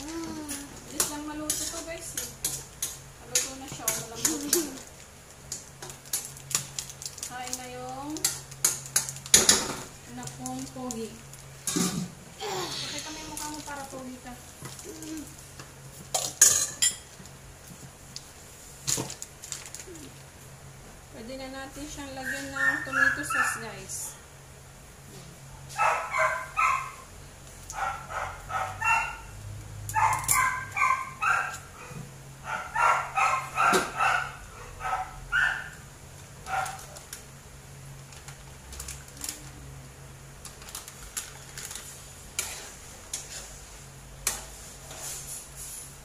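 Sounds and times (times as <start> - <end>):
small dog barking and yipping: 22.3 - 23.7, 25.7 - 27.1, 27.7 - 35.8, 36.5 - 36.9.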